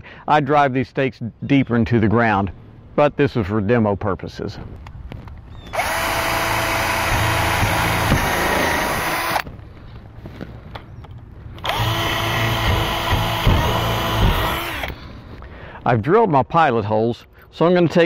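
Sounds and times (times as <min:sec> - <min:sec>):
power drill boring into wood: 0:05.7 - 0:09.4, 0:11.6 - 0:15.0.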